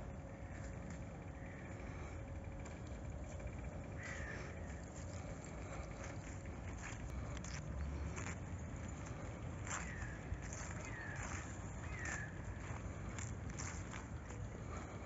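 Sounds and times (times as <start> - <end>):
low outdoor rumble: 0.0 - 15.0
crows cawing: 1.4 - 1.8, 3.8 - 6.2, 9.7 - 12.8.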